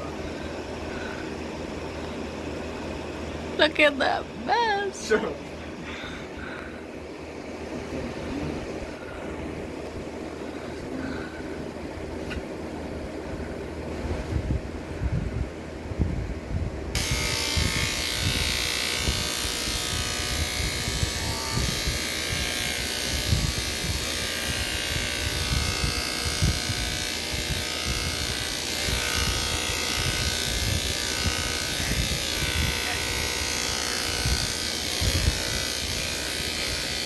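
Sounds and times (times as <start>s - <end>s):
electric hair clippers cutting hair: 0.0s - 1.4s, 16.9s - 37.0s.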